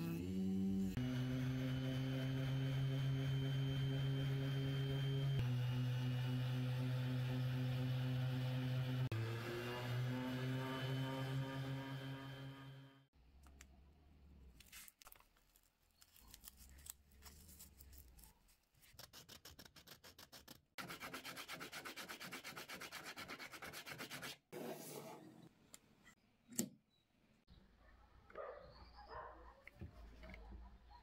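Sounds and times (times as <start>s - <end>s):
power sander hum: 0.0s - 13.0s
sandpaper rubbing on wood: 18.9s - 25.0s.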